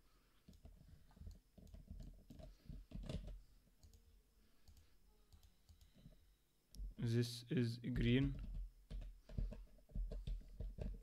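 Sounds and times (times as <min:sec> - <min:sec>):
computer mouse and keyboard clicks: 0:00.4 - 0:04.0.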